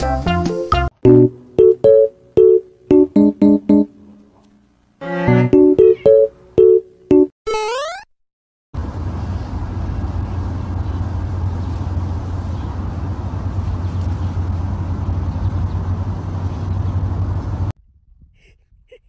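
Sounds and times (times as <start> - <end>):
low rumble of street traffic: 8.8 - 17.8.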